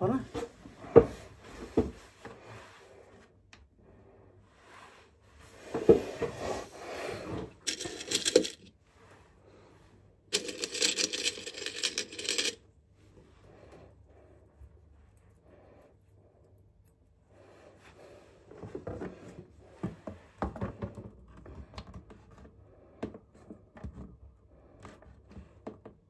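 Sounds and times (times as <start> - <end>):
small metal pieces jingling: 7.7 - 8.7, 10.4 - 12.6.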